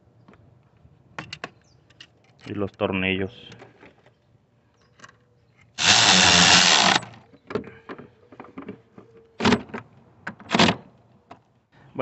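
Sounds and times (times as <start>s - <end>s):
power driver spinning bolts: 5.8s - 7.2s.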